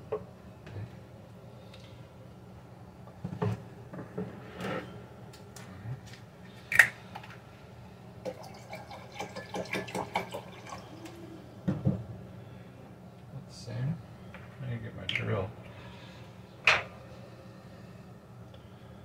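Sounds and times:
juice pouring into a mug: 8.2 - 11.2
drips and splashes: 8.3 - 10.9.

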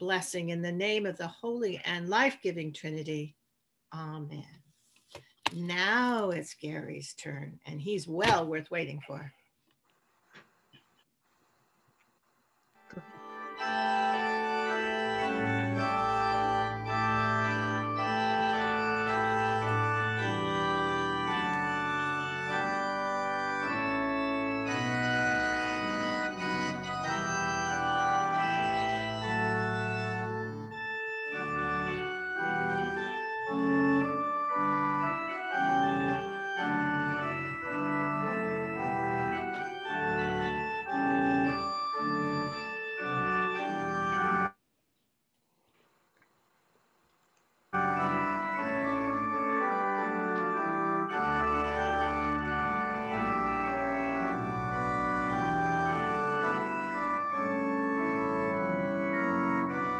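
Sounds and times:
organ playing chords: 12.7 - 44.6, 47.8 - 59.9.

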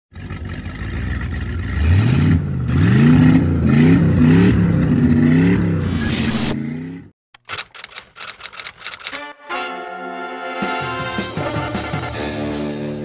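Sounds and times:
engine revving: 0.3 - 7.2.

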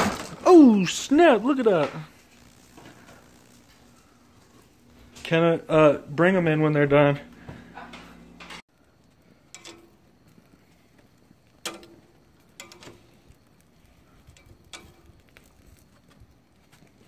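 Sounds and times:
room noise: 0.0 - 17.0.

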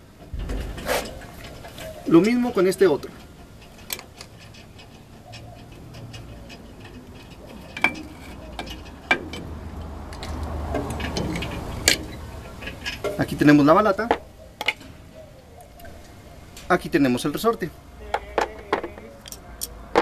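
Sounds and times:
metallic clicks and clinks: 18.2 - 20.0.

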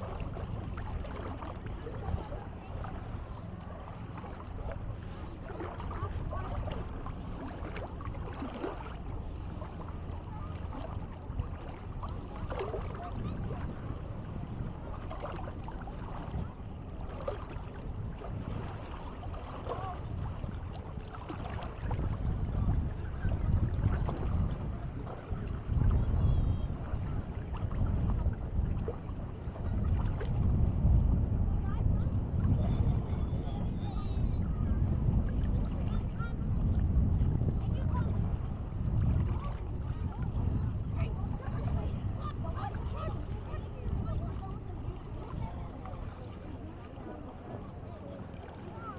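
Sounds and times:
wind rumble on microphone: 0.0 - 48.9
people's voices: 39.3 - 48.9.

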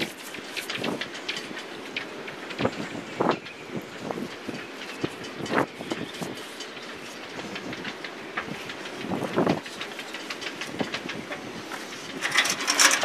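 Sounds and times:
crackling rustle: 0.0 - 13.0.

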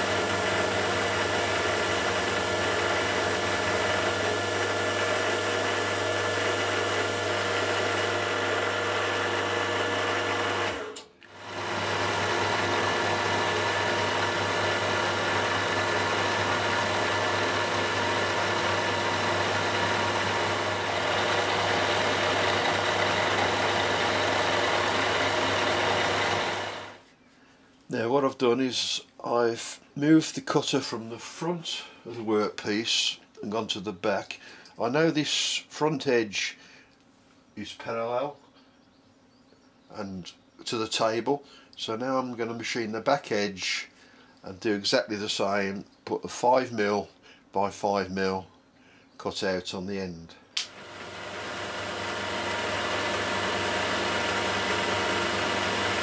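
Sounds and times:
milling machine cutting metal: 0.0 - 27.0, 50.6 - 56.0.

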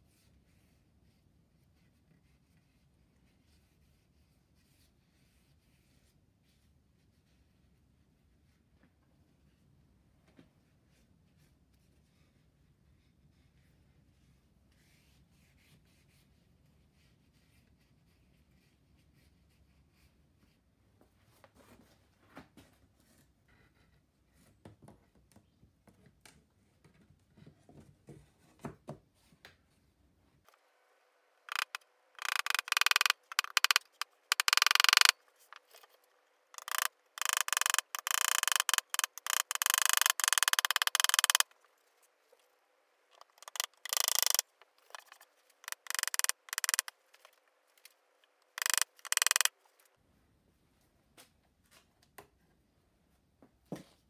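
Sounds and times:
hand tool scraping wood: 31.5 - 41.6, 43.1 - 47.4.

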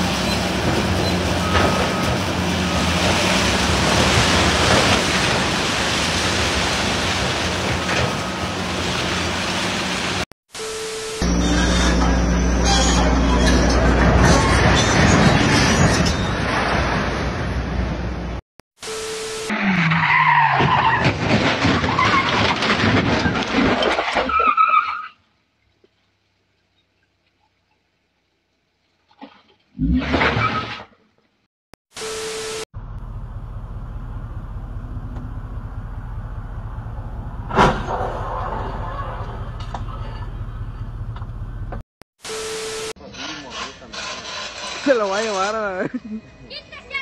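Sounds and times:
vehicle noise: 0.0 - 23.3, 32.0 - 47.0
car tyres squealing and skidding: 19.5 - 22.6, 24.2 - 25.2
building collapsing rumble: 32.8 - 41.8.

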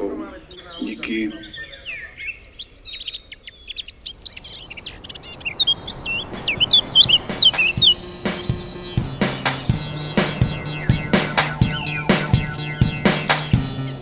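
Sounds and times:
birds chirping and singing: 0.0 - 14.0
wash of noise: 4.3 - 14.0
music with sharp beats: 7.0 - 14.0.

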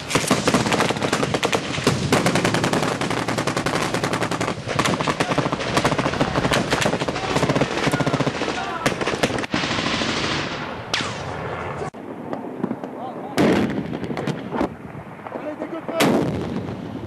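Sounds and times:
machine-gun burst: 0.0 - 10.6
rifle shots: 0.0 - 11.5.

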